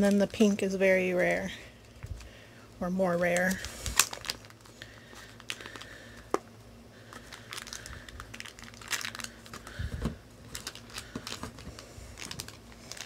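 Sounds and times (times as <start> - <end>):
faint steady hum: 0.0 - 13.0
light crinkling: 7.0 - 13.0.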